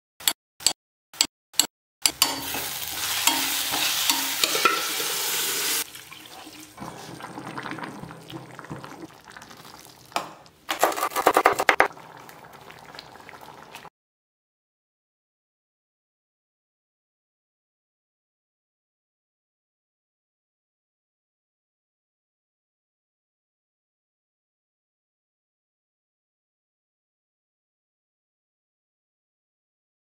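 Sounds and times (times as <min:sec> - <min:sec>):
spoon scraping a steel pot: 0:01.6 - 0:05.2, 0:10.7 - 0:11.9
masala sizzling in a pot: 0:02.2 - 0:13.9.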